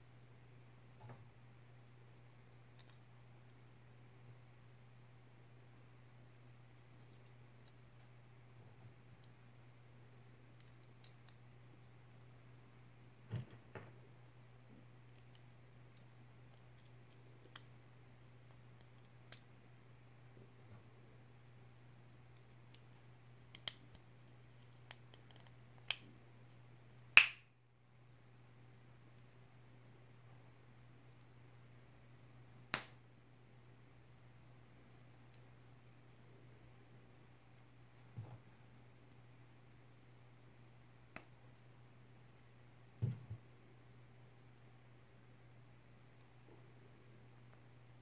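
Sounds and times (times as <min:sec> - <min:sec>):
faint low hum: 0:00.0 - 0:48.0
sharp plastic snap: 0:32.7 - 0:33.0
soft plastic thumps: 0:43.0 - 0:43.4.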